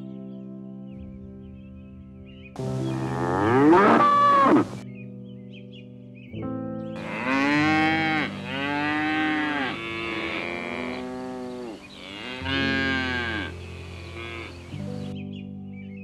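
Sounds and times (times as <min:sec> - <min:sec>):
soft background music: 0:00.0 - 0:16.0
bison calling: 0:03.0 - 0:04.8, 0:07.0 - 0:14.7.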